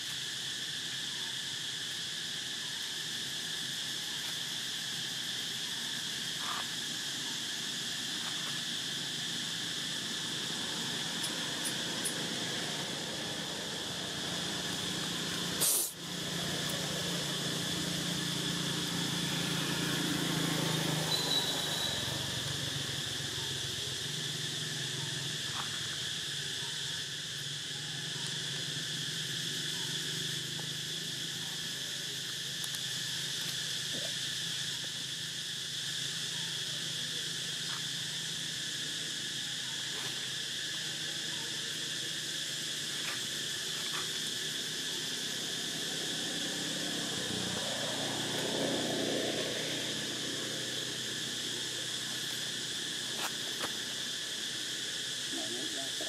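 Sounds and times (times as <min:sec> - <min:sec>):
insect chorus droning: 0:00.0 - 0:56.0.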